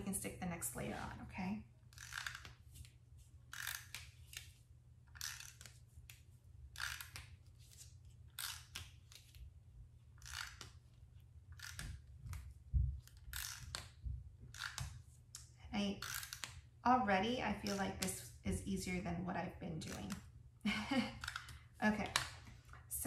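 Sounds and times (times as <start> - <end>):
low steady hum: 0.0 - 23.0
tape runner rasping on paper: 3.4 - 9.4, 11.5 - 12.4.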